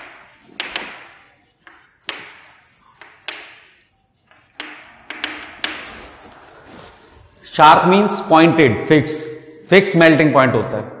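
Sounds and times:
chalk tapping on blackboard: 0:00.0 - 0:06.3.

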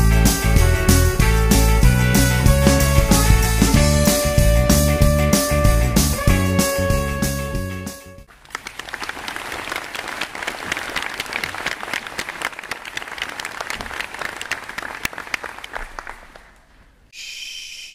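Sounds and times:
crowd applauding: 0:08.3 - 0:16.8.

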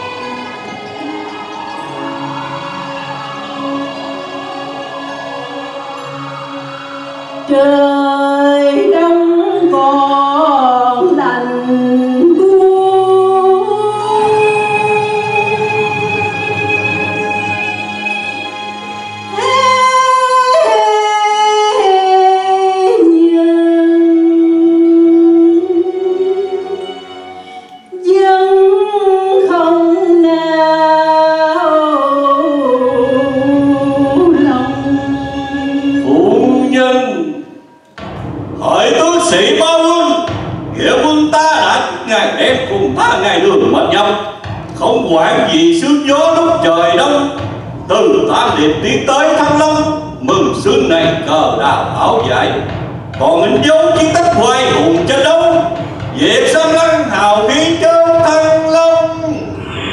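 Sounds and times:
woman singing into microphone: 0:07.2 - 0:18.2, 0:19.1 - 0:26.9, 0:27.9 - 0:36.5.

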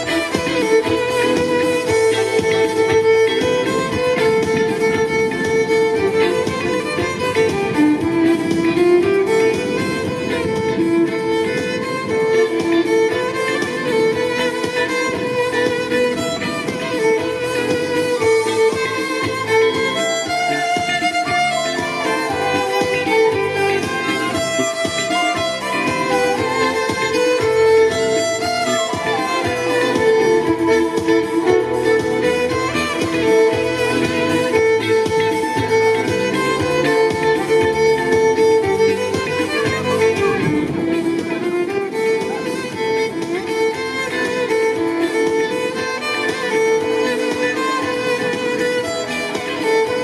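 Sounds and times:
recorded backing music: 0:00.0 - 0:50.0
violin melody over loudspeaker: 0:00.0 - 0:50.0.

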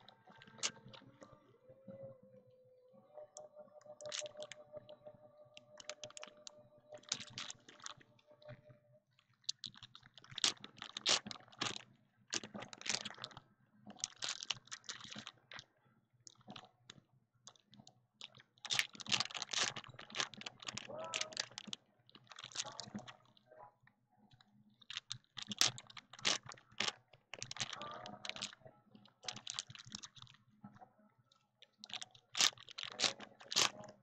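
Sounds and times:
foil wrappers crinkling: 0:00.3 - 0:01.0, 0:04.0 - 0:04.6, 0:05.6 - 0:08.0, 0:09.5 - 0:11.8, 0:12.4 - 0:13.4, 0:14.0 - 0:15.4, 0:18.2 - 0:23.2, 0:24.9 - 0:28.6, 0:29.2 - 0:30.4, 0:31.7 - 0:34.0.

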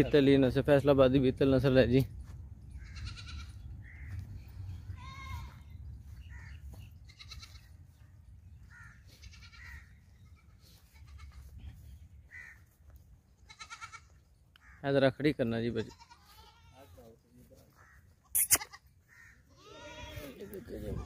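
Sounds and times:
goats bleating: 0:02.8 - 0:04.2, 0:04.9 - 0:05.7, 0:07.0 - 0:07.7, 0:09.0 - 0:11.5, 0:13.4 - 0:14.2, 0:15.8 - 0:17.1, 0:18.3 - 0:21.0.

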